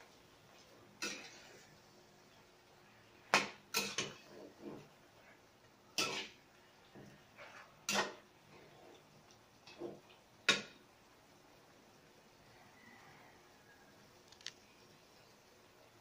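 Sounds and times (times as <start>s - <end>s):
spatula scraping pan: 1.0s - 1.7s, 3.7s - 5.4s, 6.0s - 9.1s
spatula clanking on frying pan: 3.3s - 4.2s, 6.0s - 6.4s, 7.8s - 8.2s, 10.4s - 10.8s.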